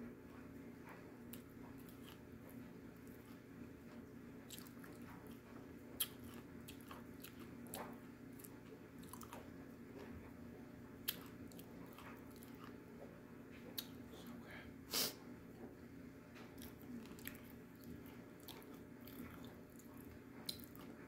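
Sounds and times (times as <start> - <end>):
person chewing crunchy clay: 1.3 - 2.2, 4.4 - 5.4, 6.0 - 9.5, 11.0 - 12.8, 16.6 - 21.0.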